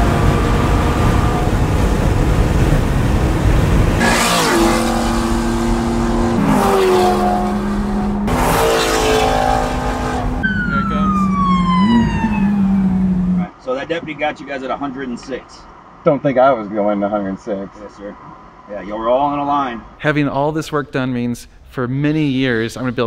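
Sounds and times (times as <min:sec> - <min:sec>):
falling engine whine: 0:00.0 - 0:13.5
car engine drone: 0:00.0 - 0:13.6
road noise: 0:00.0 - 0:23.0.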